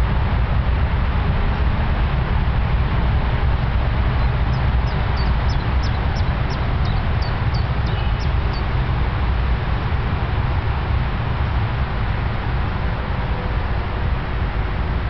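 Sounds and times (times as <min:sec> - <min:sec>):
low rumble with hiss: 0:00.0 - 0:15.0
small bird chirping: 0:04.5 - 0:08.7.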